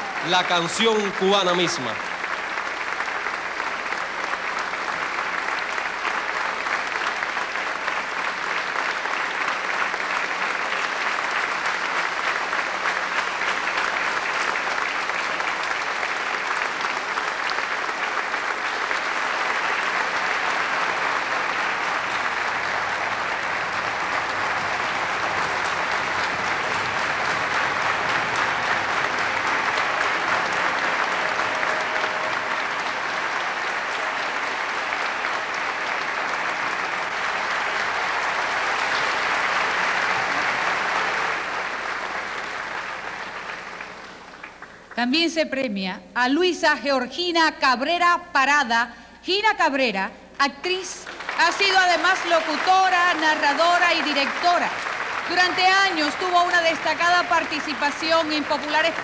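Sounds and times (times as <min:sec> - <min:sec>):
large audience applauding: 0:00.0 - 0:45.0, 0:50.6 - 0:59.0.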